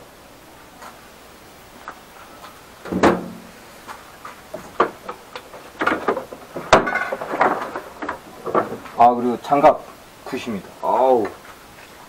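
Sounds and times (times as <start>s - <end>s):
hard objects knocking and clattering: 2.9s - 3.5s, 4.5s - 9.1s.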